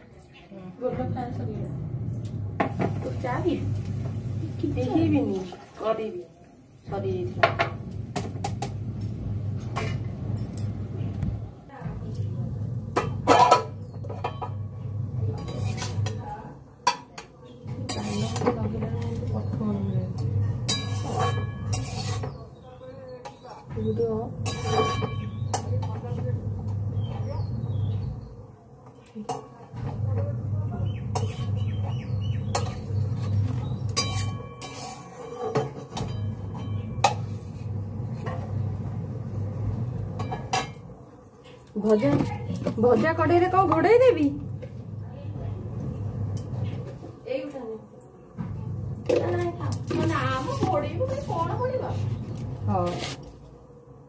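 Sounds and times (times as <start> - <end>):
steady low hum: 6.8 - 16.6, 29.7 - 54.0
utensils and dishes clinking: 7.3 - 11.0, 12.0 - 27.5, 28.8 - 44.8.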